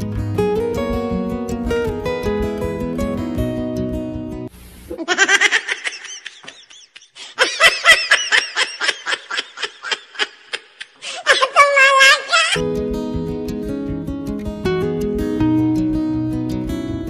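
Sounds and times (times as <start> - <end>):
baby laughing: 4.9 - 12.6.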